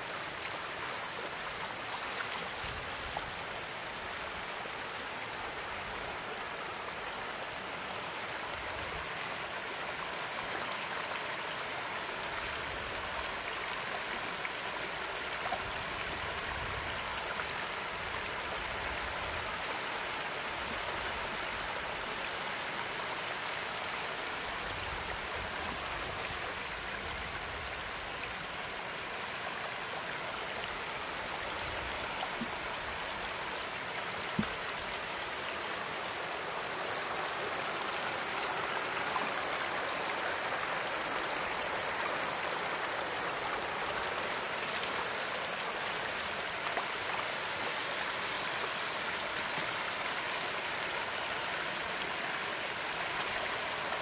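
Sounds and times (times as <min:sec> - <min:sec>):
floodwater rushing: 0:00.0 - 0:09.9, 0:24.2 - 0:54.0.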